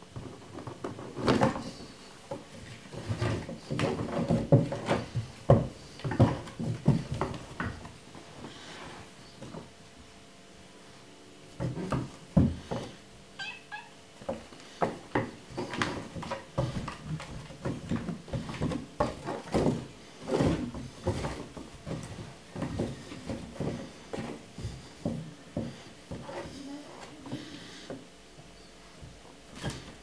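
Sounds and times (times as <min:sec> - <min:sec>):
kitten mewing: 0:13.4 - 0:14.0.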